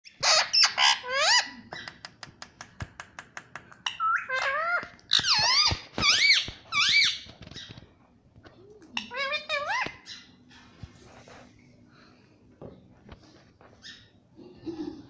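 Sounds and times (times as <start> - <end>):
parakeet shrill chirps: 3.9 - 7.7.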